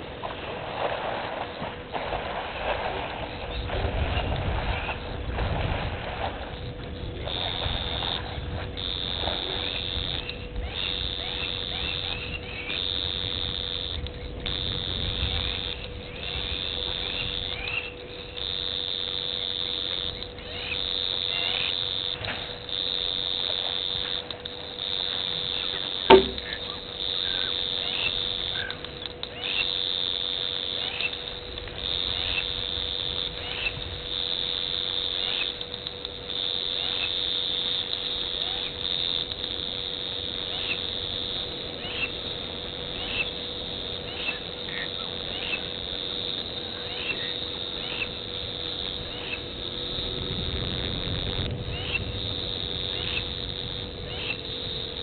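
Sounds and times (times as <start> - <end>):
water splashing: 0.0 - 17.0, 17.6 - 41.8
faint electrical hum: 0.0 - 55.0
insects chirring: 0.0 - 55.0
sharp click: 26.1 - 26.6.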